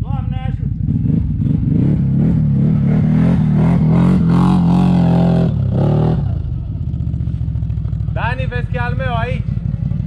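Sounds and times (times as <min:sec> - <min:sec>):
atv engine idling: 0:00.0 - 0:02.6, 0:05.5 - 0:10.0
quad engine revving under load: 0:00.7 - 0:06.7.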